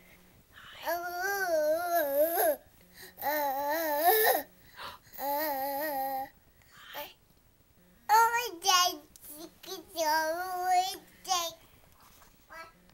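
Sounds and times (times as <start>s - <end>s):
toddler babbling: 0.8s - 2.6s, 3.2s - 4.5s, 5.2s - 6.3s.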